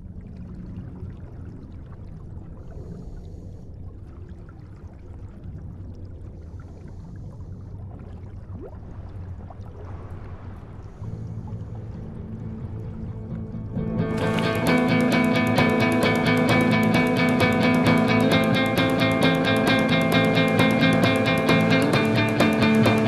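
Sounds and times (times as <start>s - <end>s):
muffled underwater rumble: 0.0s - 14.2s
small bubbly ticks: 14.1s - 23.0s.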